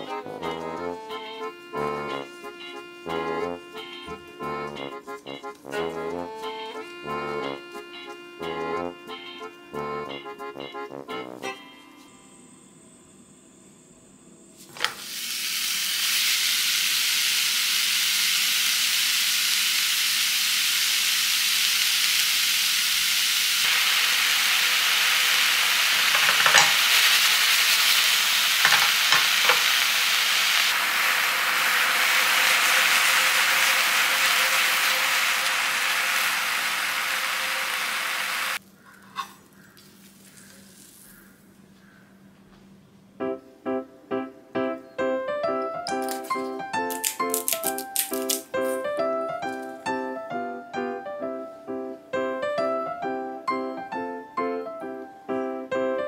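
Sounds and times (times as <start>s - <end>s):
meat sizzling in a frying pan: 14.8s - 38.6s.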